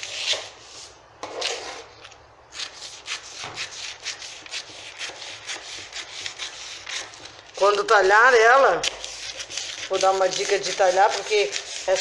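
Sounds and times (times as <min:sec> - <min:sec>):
scissors snipping paper: 0:08.8 - 0:12.0
stiff paper rustling: 0:08.9 - 0:12.0.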